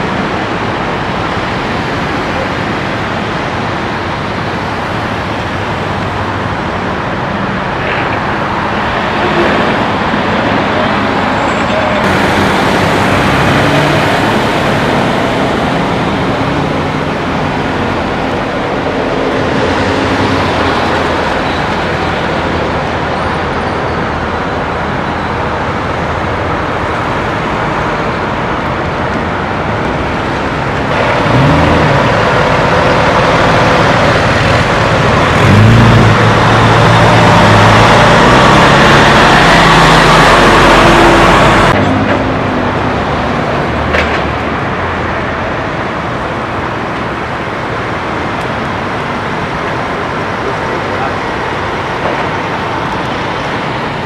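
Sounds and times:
highway traffic noise: 0.0 - 54.0
vehicle engine accelerating: 7.7 - 23.6, 28.3 - 45.8.

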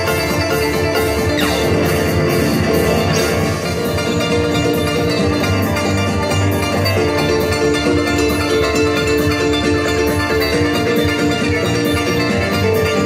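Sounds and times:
amplified harp melody: 0.0 - 13.0
steady beat: 0.0 - 13.0.

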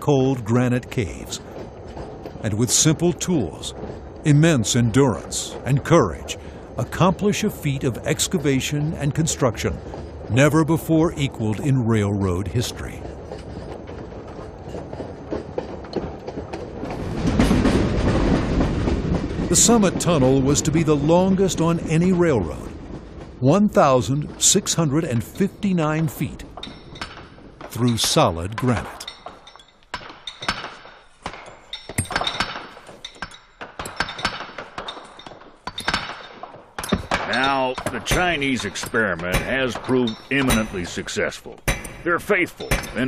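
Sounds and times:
dense clattering clicks: 0.3 - 43.0
hammers striking steel chisels: 25.0 - 43.0.

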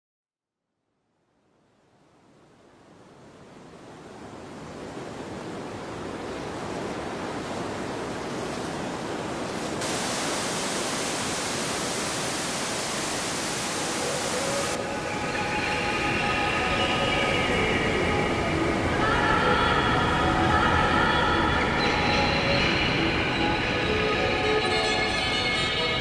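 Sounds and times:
steady rushing noise: 8.8 - 21.8
bright hiss: 9.8 - 14.8.

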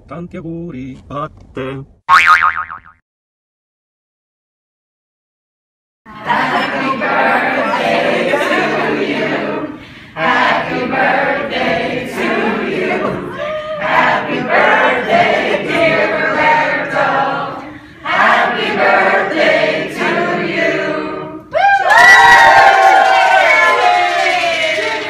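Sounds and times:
group singing in unison: 6.1 - 21.5.

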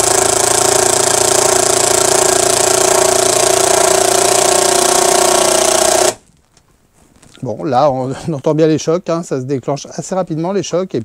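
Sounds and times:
impact driver driving screw into wood: 0.0 - 6.2.

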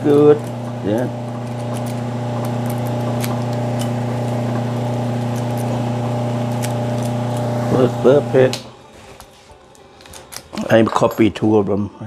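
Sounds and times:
electric motor humming: 0.0 - 8.9.

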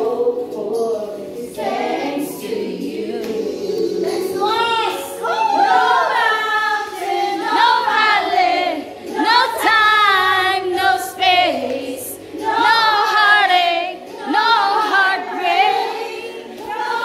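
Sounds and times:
high voices singing together: 0.0 - 17.0.

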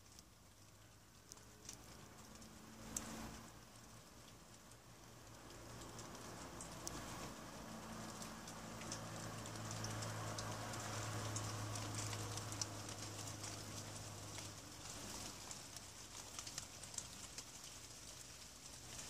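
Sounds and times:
drips and patters: 0.0 - 19.0
light rain falling: 0.0 - 19.0
low steady hum: 0.0 - 19.0.

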